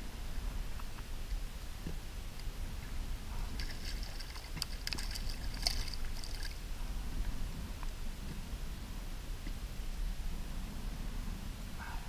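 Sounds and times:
wind on microphone: 0:00.0 - 0:12.0
water splashing: 0:03.3 - 0:06.8.

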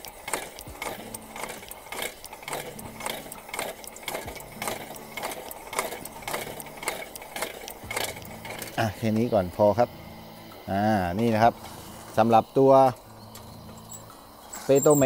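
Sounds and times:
hand air pump plunger clicking: 0:00.0 - 0:08.8.

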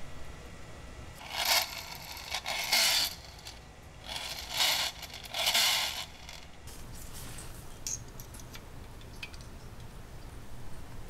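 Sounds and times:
metal parts scraping: 0:01.2 - 0:06.5.

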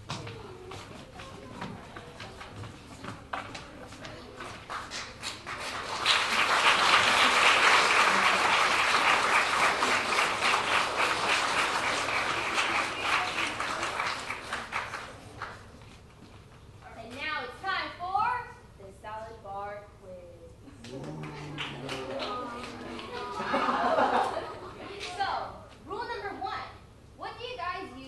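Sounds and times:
audience applauding: 0:04.7 - 0:15.6, 0:20.8 - 0:24.4.

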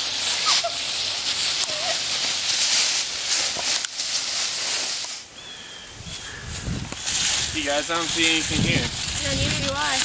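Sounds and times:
footsteps crunching through dry leaves: 0:00.0 - 0:10.0.

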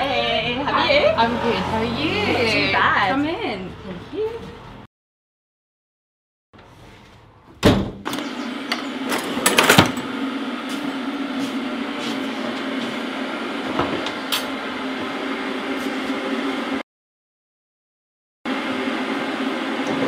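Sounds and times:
mechanical hum with low drone: 0:07.2 - 0:16.8.

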